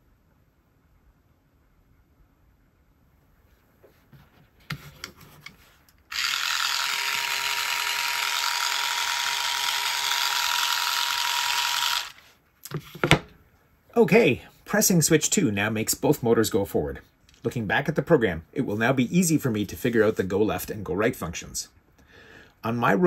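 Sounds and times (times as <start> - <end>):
gear motors whirring: 6.1 - 12.2.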